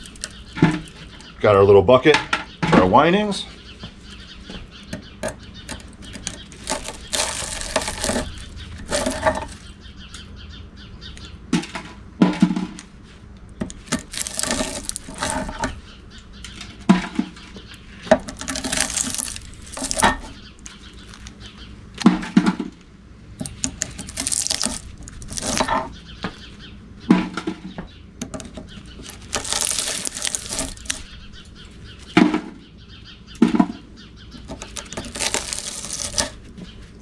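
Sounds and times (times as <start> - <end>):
wire scraping and tearing: 0.0 - 1.2, 5.6 - 9.8, 13.7 - 15.8, 18.0 - 22.2, 23.4 - 25.9, 28.2 - 32.2, 34.4 - 36.6.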